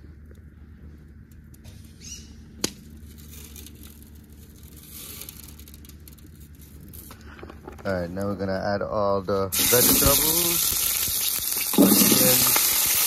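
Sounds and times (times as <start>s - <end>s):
wood fire crackling: 2.5s - 13.0s
sharp crack of fire: 2.6s - 7.0s, 9.5s - 13.0s.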